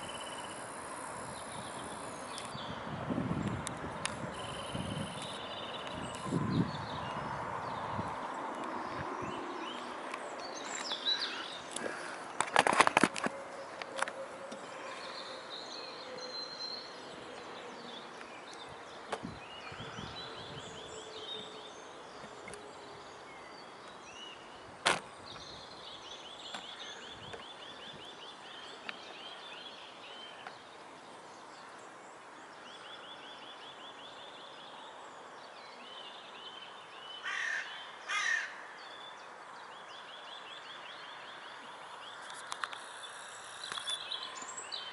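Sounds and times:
songbirds trilling: 0.0s - 44.9s
harsh bird calls: 4.3s - 12.6s, 36.8s - 39.2s.

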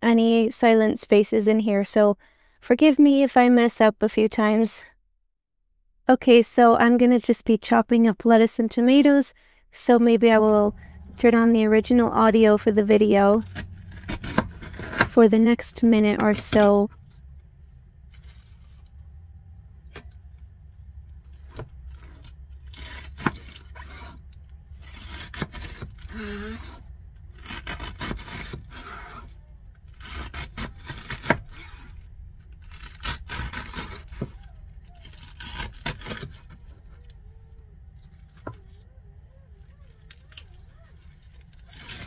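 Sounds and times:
steady low hum: 8.8s - 42.0s
knife cutting lettuce: 11.9s - 15.6s, 22.0s - 37.6s, 39.8s - 42.0s.

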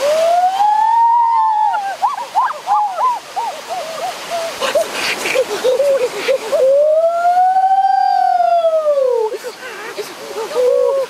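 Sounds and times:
stream rushing: 0.0s - 11.0s
boys exclaiming ooh: 6.4s - 11.0s.

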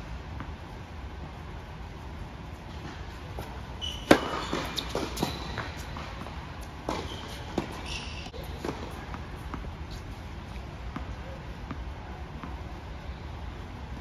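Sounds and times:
sneakers squeaking on court: 2.7s - 12.6s
tennis ball bouncing: 2.7s - 12.8s
tennis racket hitting ball: 2.8s - 9.7s.

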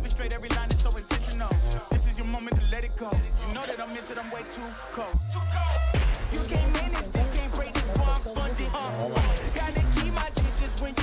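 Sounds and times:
rapping over a beat: 0.0s - 11.0s
deep bass drum hits: 6.0s - 8.3s.

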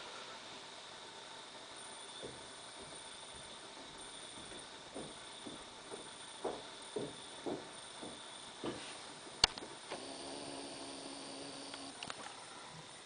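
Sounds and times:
soft muffled thuds: 3.8s - 10.0s
servo motor humming and whining: 9.9s - 12.4s.

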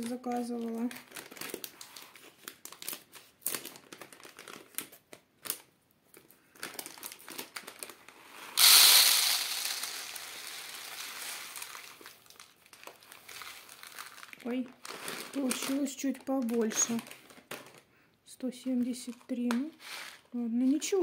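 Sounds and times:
plastic packet crinkling: 0.0s - 17.9s
grain pouring into plastic tray: 8.3s - 14.2s.

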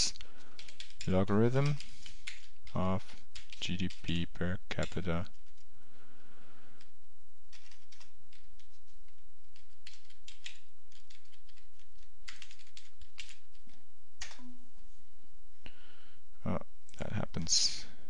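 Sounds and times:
computer keyboard typing: 0.2s - 5.7s, 7.5s - 14.4s.

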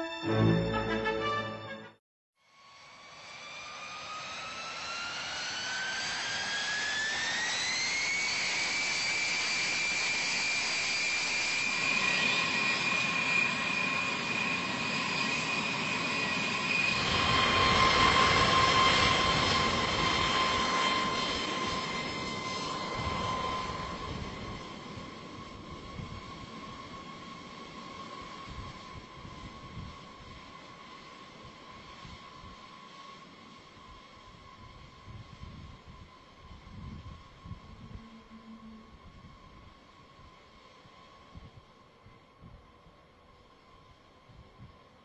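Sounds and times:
jet turbine engine whine: 2.6s - 45.0s.

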